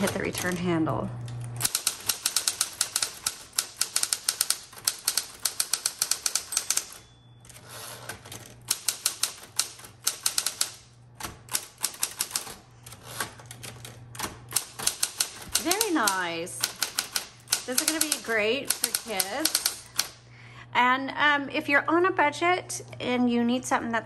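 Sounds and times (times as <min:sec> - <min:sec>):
typewriter keystrokes clacking: 0:00.0 - 0:00.8, 0:01.6 - 0:07.1, 0:08.0 - 0:20.2
typewriter carriage return: 0:00.0 - 0:20.2
typewriter motor hum: 0:00.0 - 0:20.2
typewriter bell ring: 0:01.7 - 0:08.1, 0:14.9 - 0:19.8.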